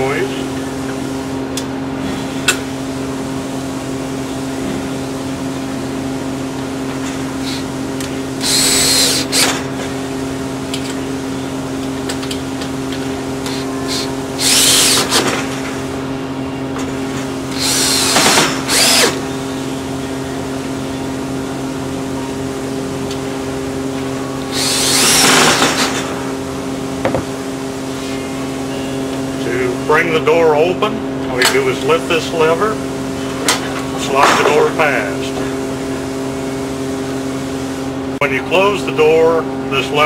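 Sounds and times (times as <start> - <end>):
steady background hum: 0.0 - 40.0
drill driver running screws: 8.4 - 9.6, 13.4 - 15.3, 17.5 - 19.2, 24.5 - 26.0.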